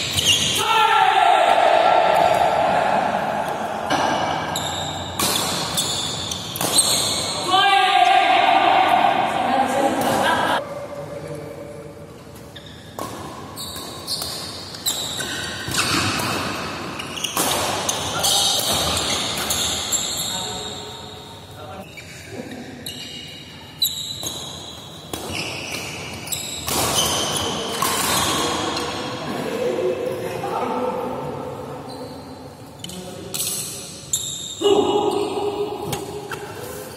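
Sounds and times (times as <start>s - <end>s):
rackets striking shuttlecock: 3.4s - 7.1s.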